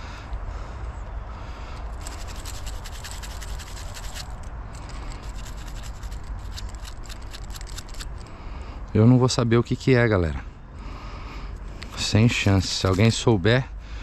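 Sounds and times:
fingers scratching dirt off object: 2.0s - 8.2s, 12.3s - 13.2s.

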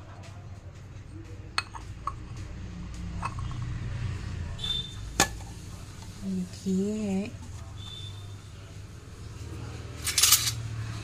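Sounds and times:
ceramic jars and spoon clinking: 1.6s - 2.4s, 3.1s - 3.7s.

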